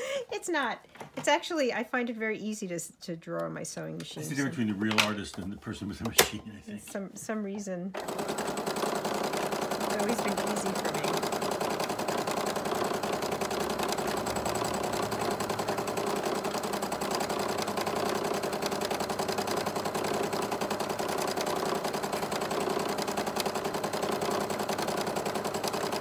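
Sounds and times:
sewing machine stitching: 0:08.0 - 0:26.0.

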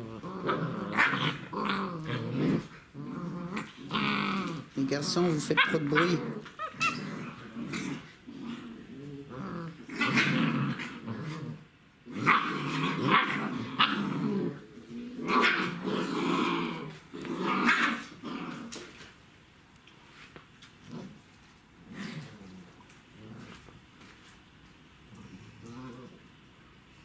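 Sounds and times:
puppies growling: 0:00.0 - 0:19.2, 0:20.8 - 0:23.9, 0:25.0 - 0:26.4
puppies barking: 0:05.5 - 0:07.4.

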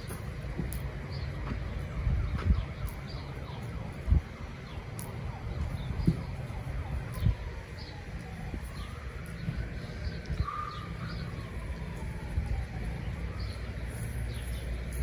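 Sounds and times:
dull low thumps: 0:05.2 - 0:10.5
faint bird calls: 0:09.8 - 0:11.4.

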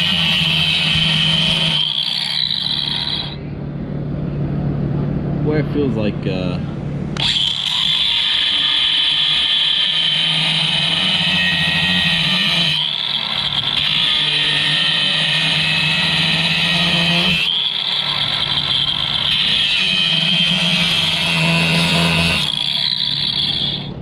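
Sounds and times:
angle grinder grinding steel: 0:00.0 - 0:03.4, 0:07.2 - 0:24.0.

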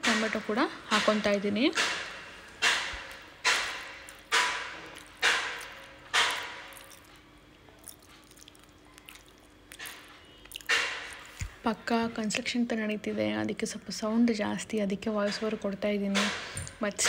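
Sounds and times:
stirring in a frying pan: 0:02.5 - 0:08.8.

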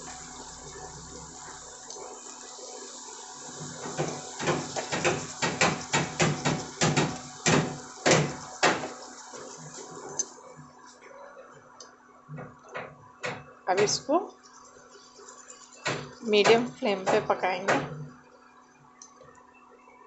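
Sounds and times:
food sizzling in oil: 0:00.0 - 0:10.5, 0:13.8 - 0:17.4.

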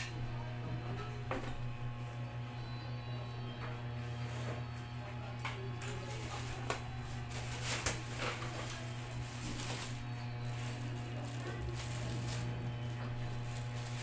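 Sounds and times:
plastic packaging crinkling: 0:05.8 - 0:14.0.

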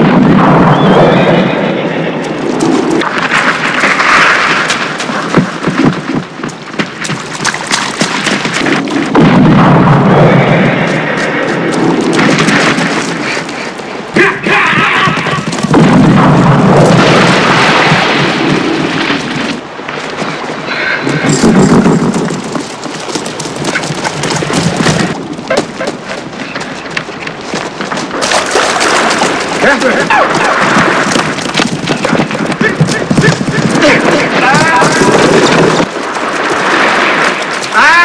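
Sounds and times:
scuffling and impacts: 0:21.3 - 0:37.7.

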